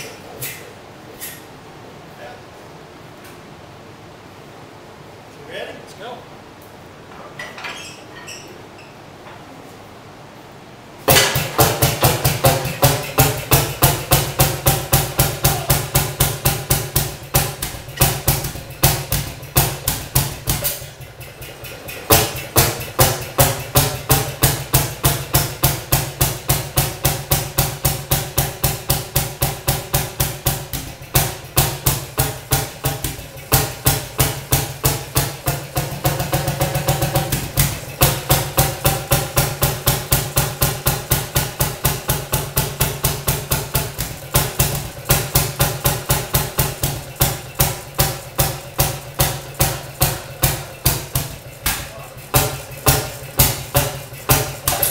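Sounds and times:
two-stroke engine popping: 0:11.1 - 0:54.9.

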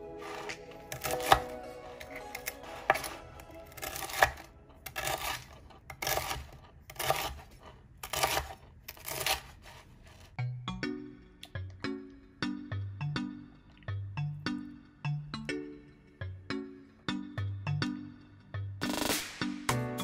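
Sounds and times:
background music: 0:00.0 - 0:05.6, 0:10.4 - 0:20.0
knife cutting crunchy bread: 0:00.2 - 0:10.4.

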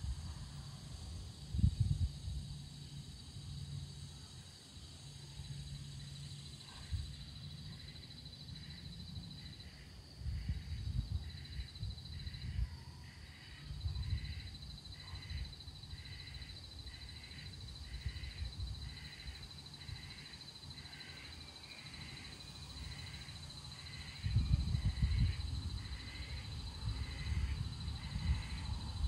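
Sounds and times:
wind rumbling on microphone: 0:00.0 - 0:03.7, 0:08.6 - 0:20.2, 0:23.8 - 0:29.0
insect high trill: 0:00.6 - 0:29.0.

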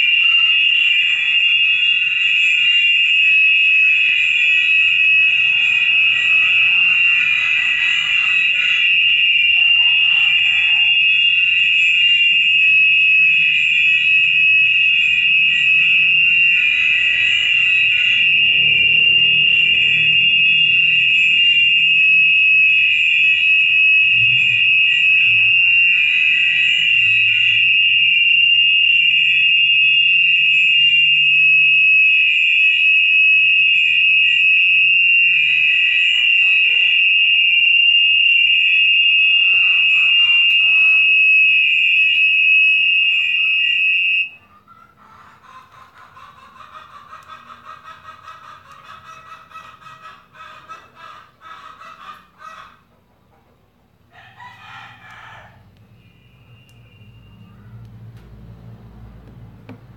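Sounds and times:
loud high-pitched tone: 0:00.0 - 0:44.4.

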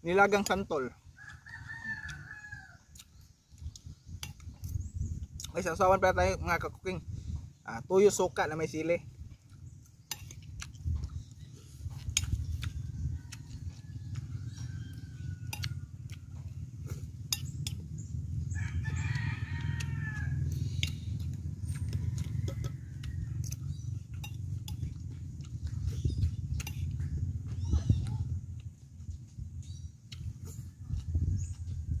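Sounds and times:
rooster crowing: 0:01.2 - 0:02.9, 0:12.9 - 0:16.6, 0:18.5 - 0:20.7, 0:21.8 - 0:23.5
steady low rumble: 0:02.1 - 0:32.0.

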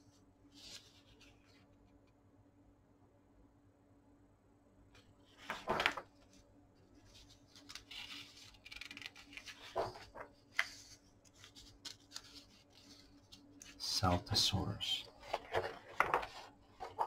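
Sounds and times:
book page turning: 0:00.5 - 0:02.0, 0:05.3 - 0:06.4, 0:07.0 - 0:14.4, 0:15.1 - 0:17.0
hands handling pages: 0:00.6 - 0:02.0, 0:05.0 - 0:17.0.

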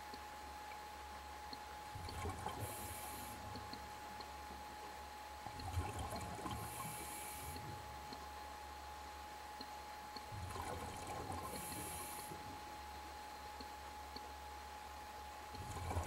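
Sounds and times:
diver breathing through regulator: 0:02.6 - 0:03.5, 0:06.6 - 0:07.6, 0:11.4 - 0:12.4.

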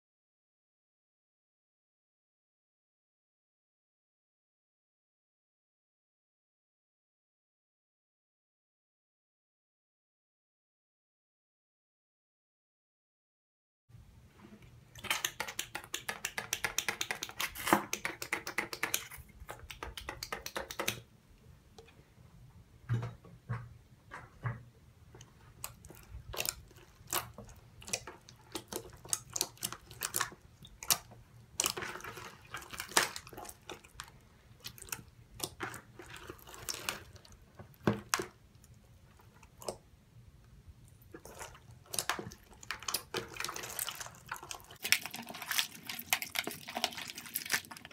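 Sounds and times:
slime squelching by hand: 0:14.9 - 0:21.0, 0:25.2 - 0:39.9, 0:40.8 - 0:47.9.

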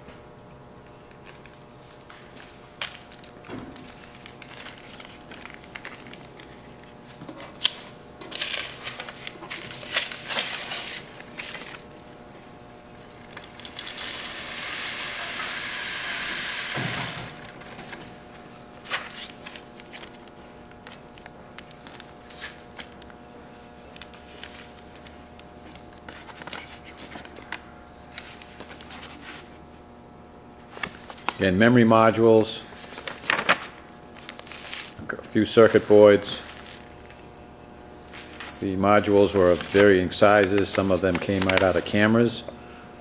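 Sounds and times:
paper and plastic bag crinkling: 0:03.0 - 0:07.0, 0:07.7 - 0:12.1, 0:13.1 - 0:14.4, 0:17.3 - 0:23.2, 0:23.8 - 0:29.5, 0:32.7 - 0:37.2, 0:38.0 - 0:42.4
particles pouring hiss: 0:13.8 - 0:17.4.

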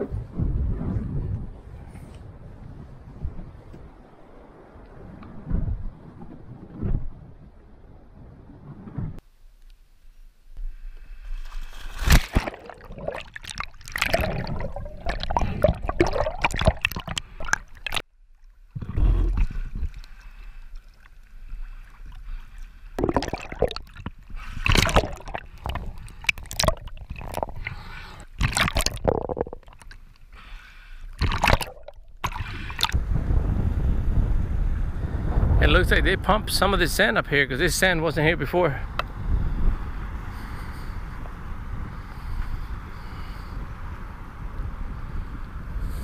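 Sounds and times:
water sloshing and splashing: 0:11.4 - 0:30.3, 0:31.1 - 0:33.0.

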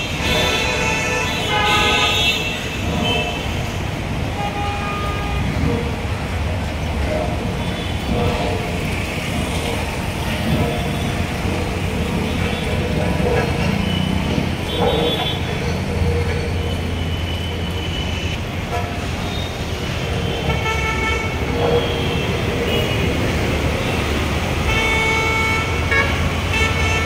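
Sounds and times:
vehicle horns honking: 0:00.0 - 0:05.6, 0:12.0 - 0:15.6, 0:16.6 - 0:27.0
traffic engines rumbling: 0:00.0 - 0:27.0.

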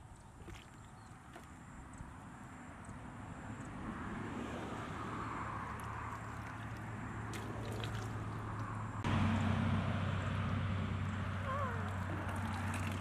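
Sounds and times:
muddy water splashing: 0:00.0 - 0:02.8, 0:04.3 - 0:13.0
sharp water drips: 0:00.0 - 0:03.0, 0:05.2 - 0:09.4, 0:11.0 - 0:13.0.

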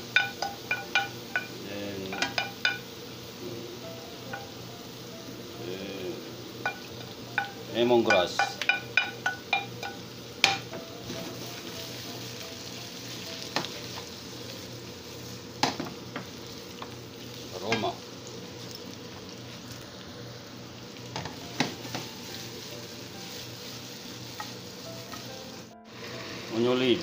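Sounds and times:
vegetables sizzling in oil: 0:00.0 - 0:27.0
utensil knocking against pan: 0:07.4 - 0:10.8, 0:21.2 - 0:22.1.

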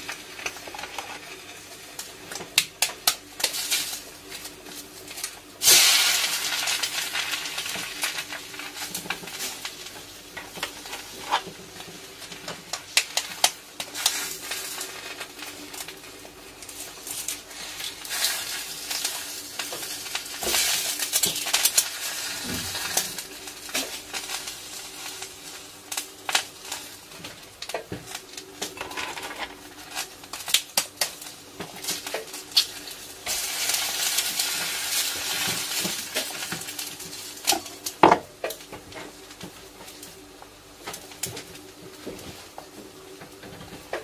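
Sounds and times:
food sizzling in a pan: 0:00.0 - 0:44.0
utensil scraping a pan: 0:28.8 - 0:29.6.

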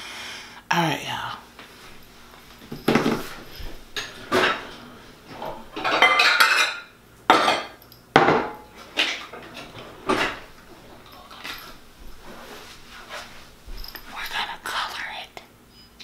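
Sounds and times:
utensils clattering on counter: 0:02.4 - 0:14.3.

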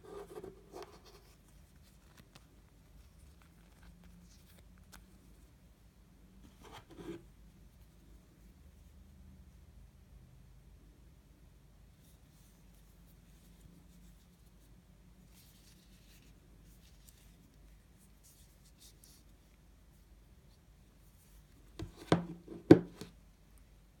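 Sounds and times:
rubbing and scratching: 0:00.0 - 0:04.6, 0:06.4 - 0:07.3
knocks on tabletop: 0:21.8 - 0:23.1.

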